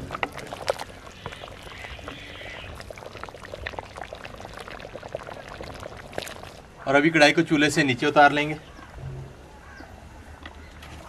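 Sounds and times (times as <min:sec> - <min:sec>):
broth sloshing and pouring: 0:00.0 - 0:06.8.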